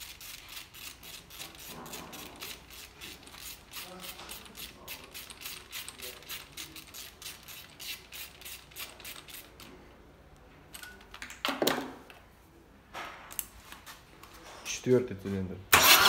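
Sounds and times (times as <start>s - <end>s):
hand ratchet clicking: 0.0s - 9.5s.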